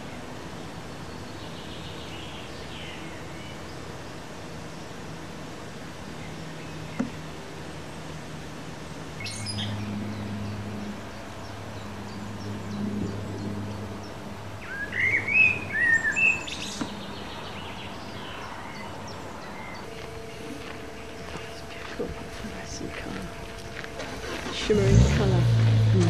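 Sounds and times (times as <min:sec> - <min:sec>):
small birds chirping: 0:00.0 - 0:24.0
faint low hum: 0:00.0 - 0:26.0.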